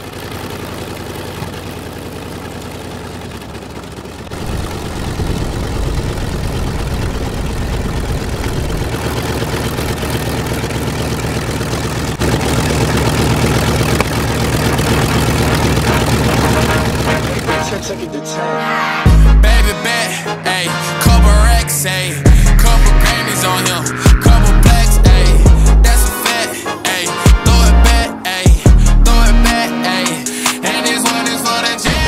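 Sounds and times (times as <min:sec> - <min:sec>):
model plane electric motor humming: 0:00.0 - 0:17.7.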